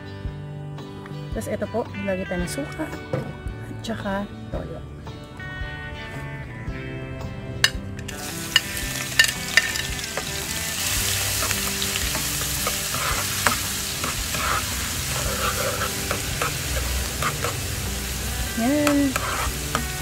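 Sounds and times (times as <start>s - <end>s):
soft background music: 0.0s - 20.0s
spoon clicking against pan: 8.0s - 10.3s
garlic sizzling in hot oil: 8.1s - 20.0s.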